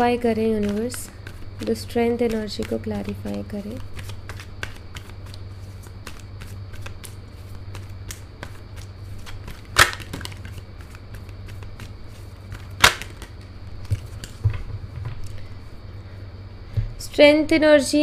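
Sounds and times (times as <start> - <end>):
low steady hum: 0.0 - 18.0
cards shuffling: 0.4 - 14.6
sharp card slaps: 7.7 - 10.6, 12.5 - 13.4.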